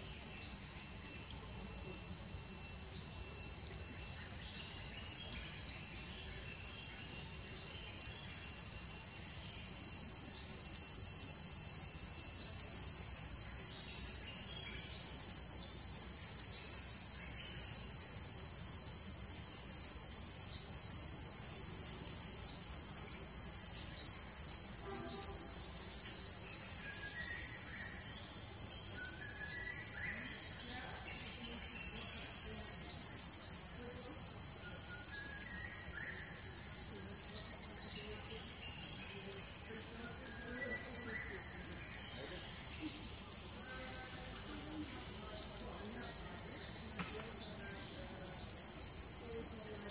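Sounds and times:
high-pitched insect chorus: 0:00.0 - 0:49.9
short rising insect chirp: 0:38.1 - 0:48.3.

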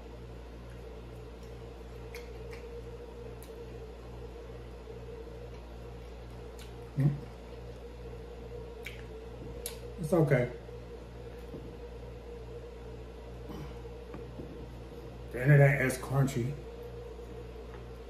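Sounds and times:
pulsing low hum: 0:00.0 - 0:18.0
man chewing fried food: 0:00.2 - 0:10.0.

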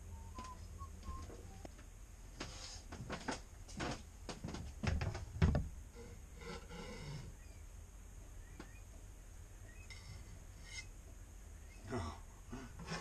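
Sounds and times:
low throaty groan: 0:11.8 - 0:13.0.

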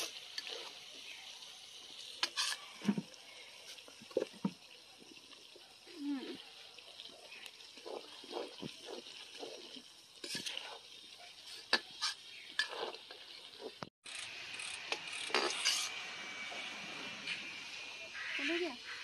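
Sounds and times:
metal spoon scraping a pan: 0:00.0 - 0:00.8, 0:02.1 - 0:03.0, 0:07.8 - 0:17.6
frying hiss: 0:00.0 - 0:19.0.

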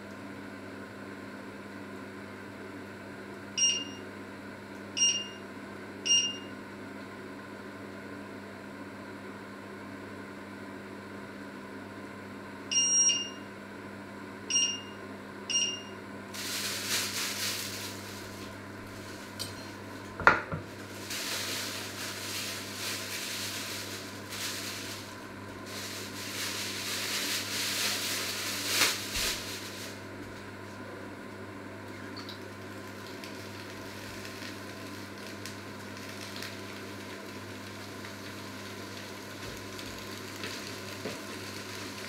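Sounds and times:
cooktop control beeps: 0:03.6 - 0:04.1, 0:05.0 - 0:05.5, 0:06.1 - 0:06.6, 0:12.7 - 0:13.5, 0:14.5 - 0:16.0.

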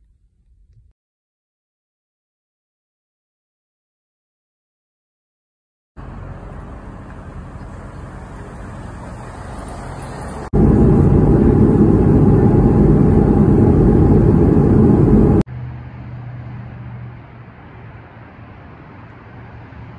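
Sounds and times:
jet cabin engine roar: 0:06.0 - 0:15.5
street ambience: 0:06.0 - 0:19.9.

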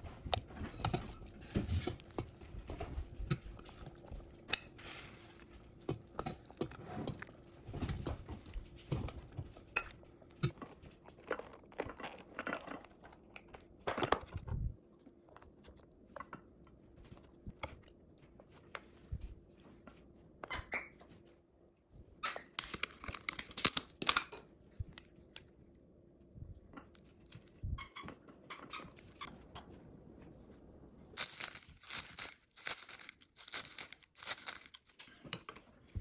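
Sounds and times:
plastic containers crackling: 0:31.2 - 0:35.0.

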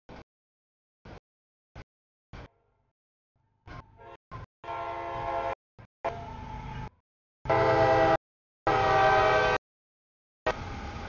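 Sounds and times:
locomotive horn blasts: 0:03.9 - 0:09.6.

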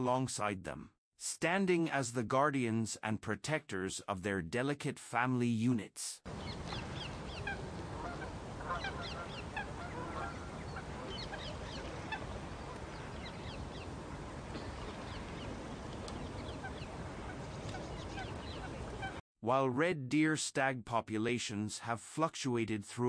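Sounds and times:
birds chirping: 0:06.3 - 0:19.2
outdoor background noise: 0:06.3 - 0:19.2.

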